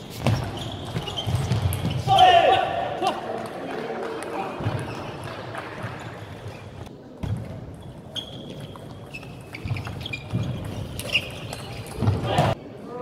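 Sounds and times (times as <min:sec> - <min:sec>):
murmur of large hall: 0:00.0 - 0:13.0
short high squeaks: 0:08.2 - 0:12.0.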